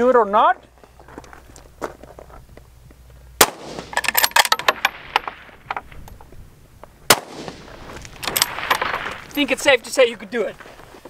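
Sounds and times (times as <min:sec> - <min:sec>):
rifle shots: 0:03.4 - 0:05.6, 0:07.1 - 0:09.3
metallic clicks of rifle bolt: 0:03.9 - 0:06.3, 0:08.1 - 0:09.2.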